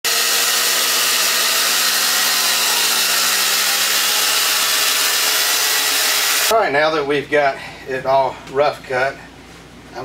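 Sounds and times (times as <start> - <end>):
band blade sawing wood: 0.0 - 6.5.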